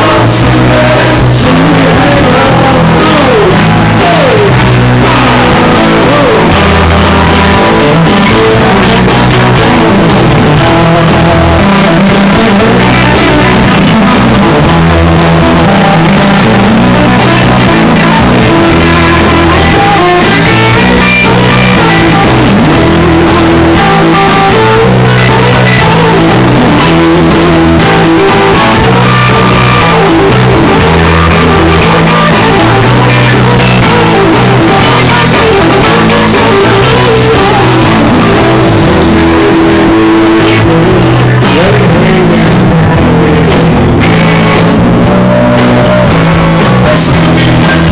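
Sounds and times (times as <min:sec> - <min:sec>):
electric bass: 0:00.0 - 0:47.9
electric guitar: 0:00.0 - 0:47.9.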